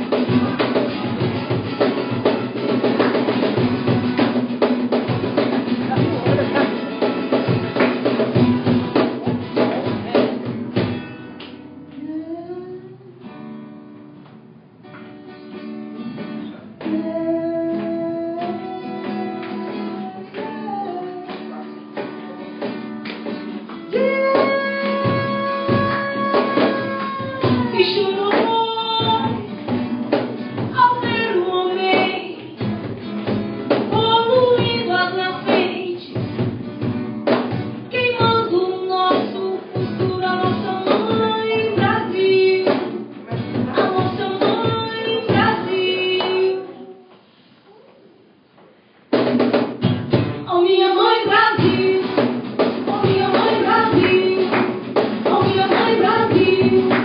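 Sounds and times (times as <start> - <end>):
cajon drumming: 0.0 - 12.1, 14.2 - 47.3, 49.1 - 57.0
acoustic guitars strumming: 0.0 - 47.6, 49.1 - 57.0
woman singing: 11.9 - 13.3, 16.8 - 22.0, 23.8 - 29.7, 30.6 - 33.1, 33.7 - 36.5, 37.9 - 47.1, 50.4 - 57.0.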